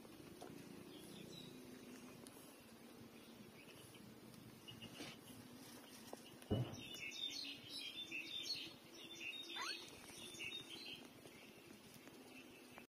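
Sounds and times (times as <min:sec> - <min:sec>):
dull thump: 0:06.5 - 0:07.0
puppies squeaking: 0:09.6 - 0:10.0
puppy whining: 0:09.6 - 0:10.0.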